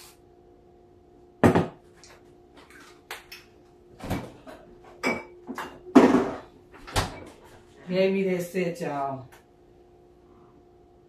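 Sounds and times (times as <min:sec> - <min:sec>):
dishes clinking: 0:05.0 - 0:06.4.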